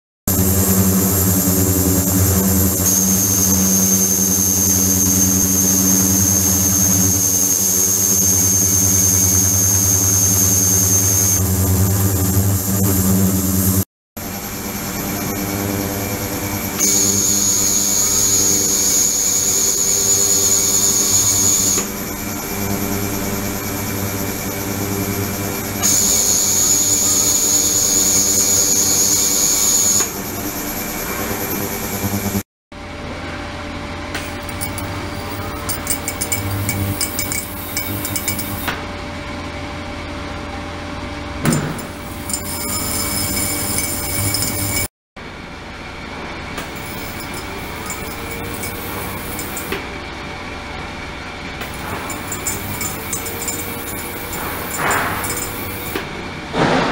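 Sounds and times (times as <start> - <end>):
high thin whine: 41.6 - 44.9.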